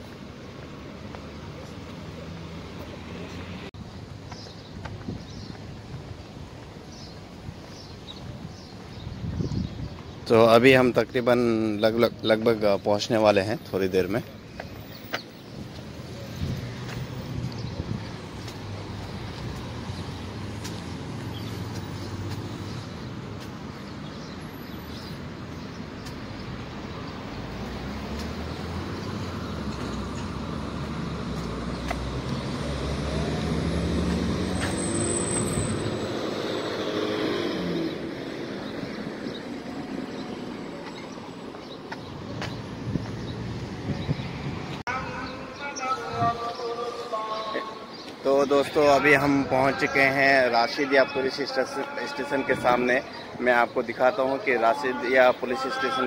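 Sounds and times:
cars driving past: 0.0s - 3.8s, 13.9s - 44.8s.

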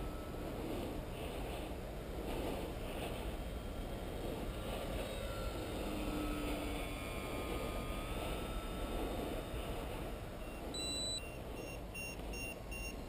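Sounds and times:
wind rumbling on microphone: 0.0s - 10.8s
distant model plane motor whine: 0.0s - 13.0s.

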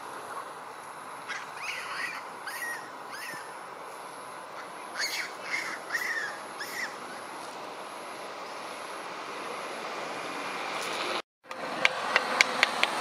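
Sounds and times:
background hiss: 0.0s - 11.2s
infant monkey squeaking: 1.3s - 3.6s, 4.6s - 7.0s.

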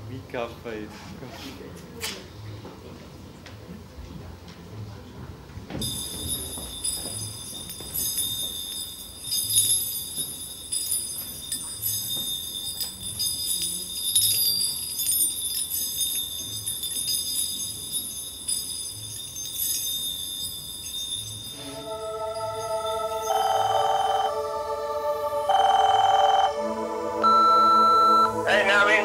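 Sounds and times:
small bells jingling: 5.8s - 24.7s.

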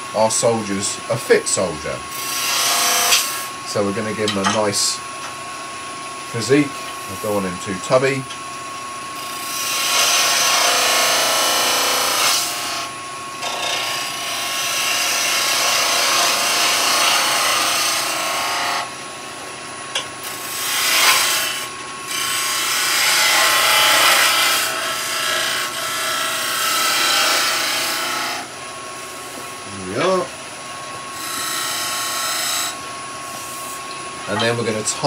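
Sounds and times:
lathe whine: 0.0s - 35.0s
chisel shaving wood on lathe: 9.2s - 12.8s, 13.4s - 18.9s, 20.2s - 28.5s, 31.2s - 32.8s.

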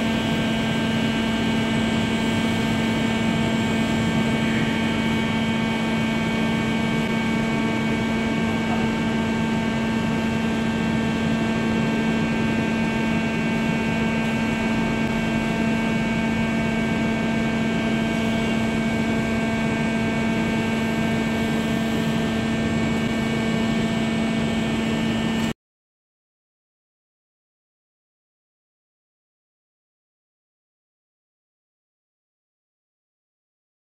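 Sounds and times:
metal spinning machine hum: 0.0s - 25.5s.

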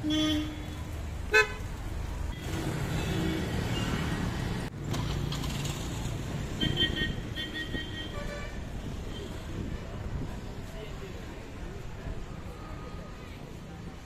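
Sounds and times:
vehicle engines rumbling past: 0.0s - 7.8s.

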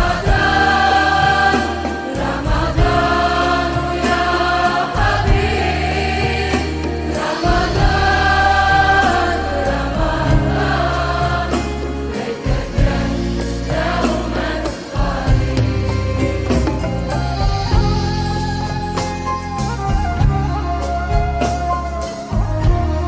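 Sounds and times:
choir-like backing vocals: 0.0s - 17.8s.

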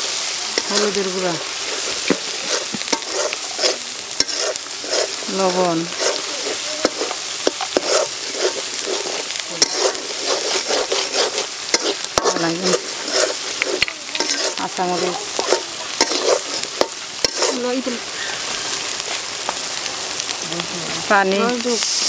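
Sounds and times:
paste sizzling in oil: 0.0s - 22.0s
metal spatula scraping pan: 0.6s - 17.8s.

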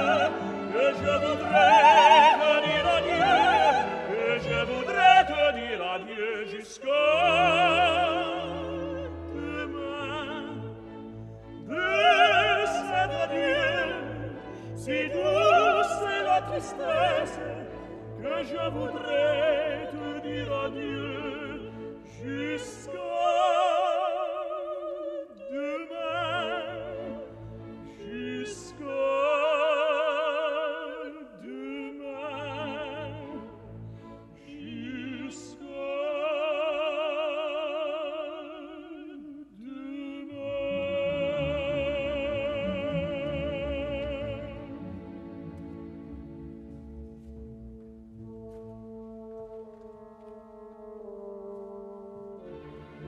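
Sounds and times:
orchestra playing: 0.0s - 24.5s, 40.4s - 53.0s
operatic singing: 0.0s - 47.4s.

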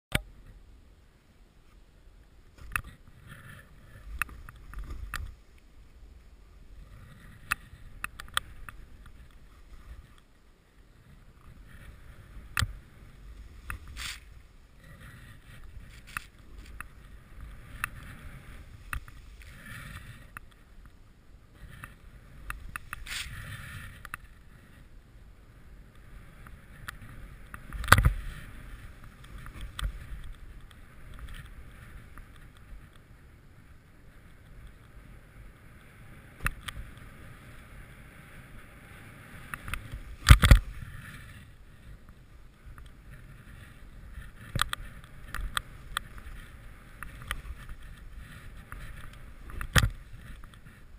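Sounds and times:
wind on microphone: 11.0s - 50.9s
snowboard swishing through powder: 11.9s - 20.3s, 23.0s - 24.0s.

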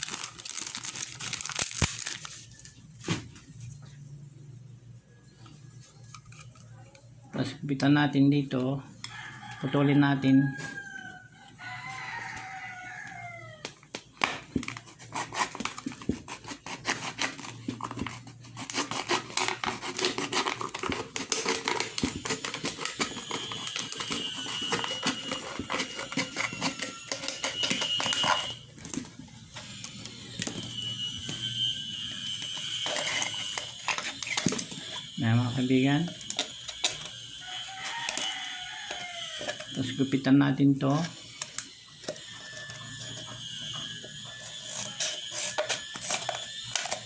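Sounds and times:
knife cutting plastic bottle: 14.2s - 30.8s, 32.4s - 35.1s, 44.0s - 47.0s.

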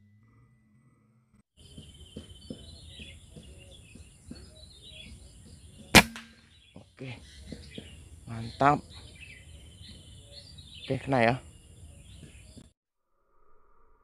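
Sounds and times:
birds chirping: 1.6s - 12.7s
air rifle shot: 6.0s - 6.4s
insects droning: 7.0s - 14.0s.

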